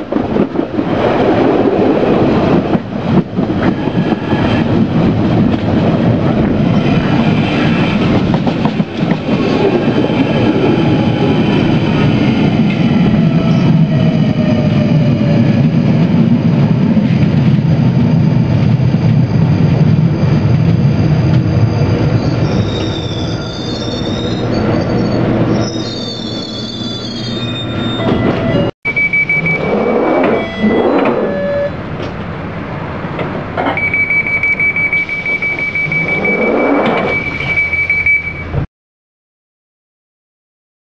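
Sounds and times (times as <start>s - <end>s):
train running rumble with motor whine: 0.0s - 25.8s
wheel and brake squeals: 19.4s - 31.8s, 35.0s - 38.5s.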